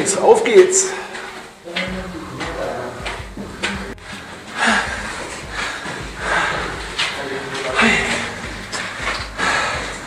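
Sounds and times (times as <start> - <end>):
footsteps on concrete stairs: 0.3 - 10.0.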